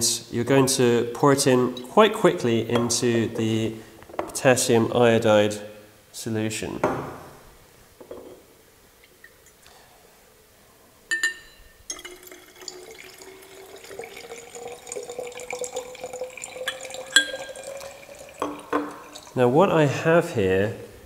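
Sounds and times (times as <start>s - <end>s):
glass clink: 11.1s - 19.3s
liquid gurgling into glass flask: 11.9s - 19.4s.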